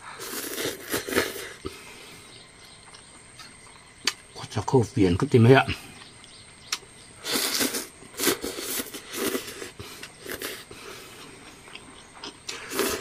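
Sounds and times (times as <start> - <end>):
person slurping noodles: 0.0 - 1.8, 7.2 - 11.2, 12.5 - 13.0.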